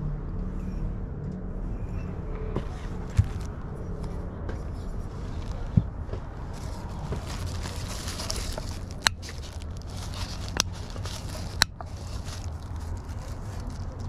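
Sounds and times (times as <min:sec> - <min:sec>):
plastic wrapping crinkling: 0:05.0 - 0:05.7, 0:06.4 - 0:14.0.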